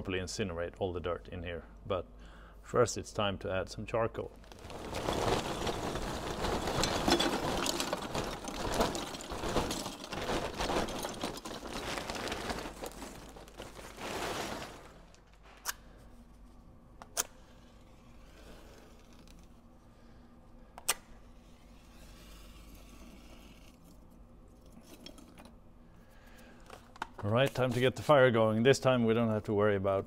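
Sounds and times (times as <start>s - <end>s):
charcoal clattering onto grate: 4.5s - 15.2s.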